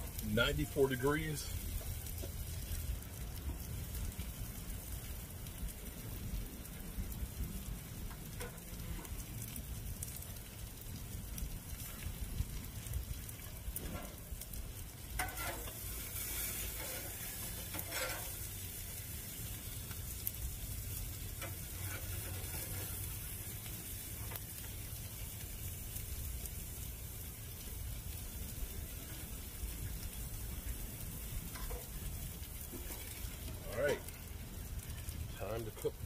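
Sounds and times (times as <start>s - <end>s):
food sizzling on a griddle: 0.0s - 36.0s
low burner rumble: 0.0s - 36.0s
metal tongs scraping: 17.7s - 18.4s.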